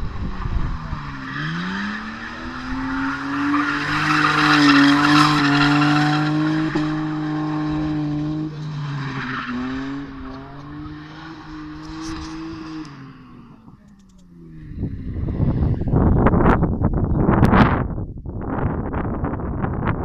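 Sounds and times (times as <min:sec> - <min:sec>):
car engine at high revs: 0:00.0 - 0:16.6.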